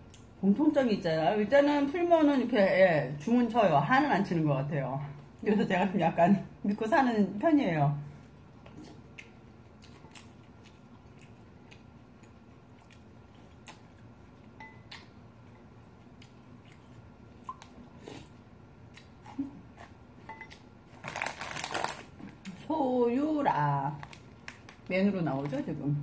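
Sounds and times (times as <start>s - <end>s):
chewing: 8.2s - 22.6s.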